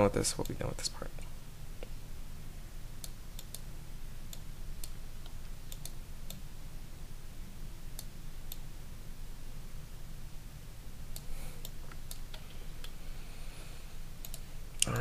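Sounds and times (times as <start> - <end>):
steady low hum: 0.0 - 15.0
computer mouse clicks: 3.0 - 3.6, 4.3 - 6.4, 11.1 - 13.0, 14.2 - 15.0.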